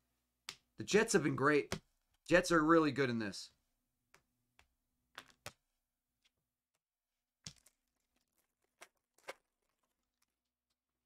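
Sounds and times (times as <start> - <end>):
foil wrapper tearing and crinkling: 7.6 - 10.5.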